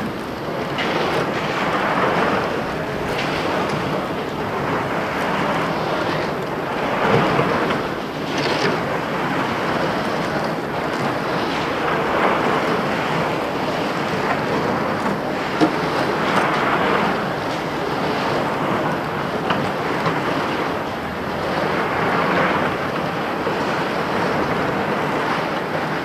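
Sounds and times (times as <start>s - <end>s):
street sounds: 0.0s - 10.9s.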